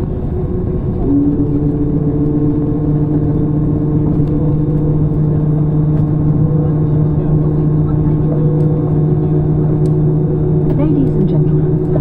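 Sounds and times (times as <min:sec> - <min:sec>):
aircraft cabin rumble: 0:00.0 - 0:12.0
steady engine hum: 0:00.0 - 0:12.0.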